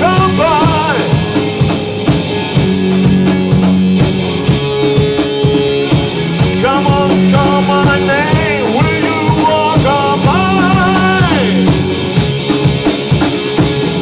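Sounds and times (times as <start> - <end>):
rock band playing live: 0.0 - 14.0
sliding lead melody: 0.0 - 14.0.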